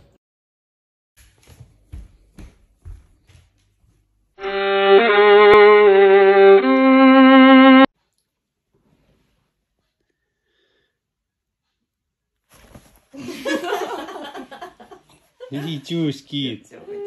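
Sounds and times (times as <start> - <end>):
violin phrase: 4.4 - 7.9.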